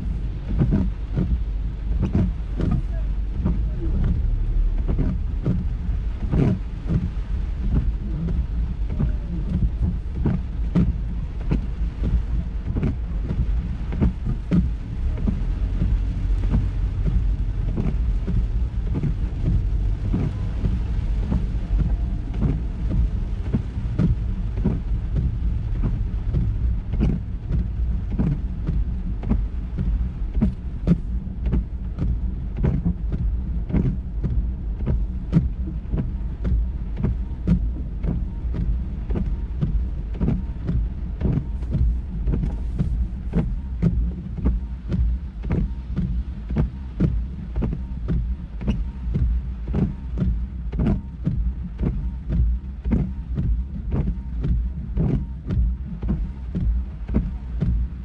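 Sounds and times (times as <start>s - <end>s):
raindrops tapping on car: 0.0s - 58.0s
road and engine rumble: 0.0s - 58.0s.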